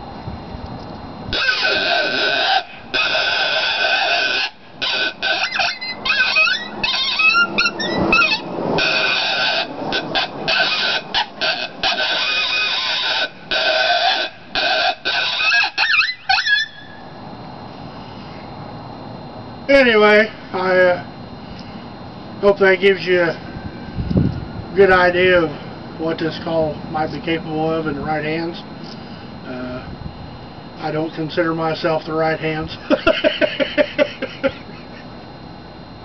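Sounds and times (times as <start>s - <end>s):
mouth-blown coyote call: 1.3s - 17.1s.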